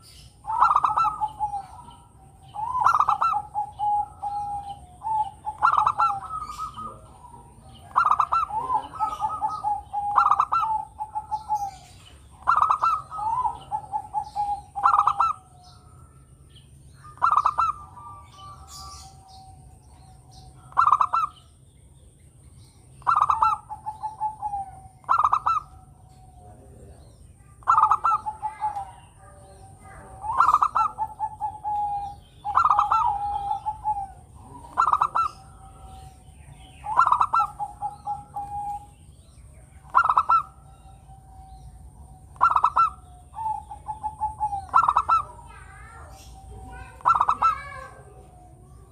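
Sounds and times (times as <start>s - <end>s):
dove cooing: 0.0s - 21.6s, 22.5s - 48.9s.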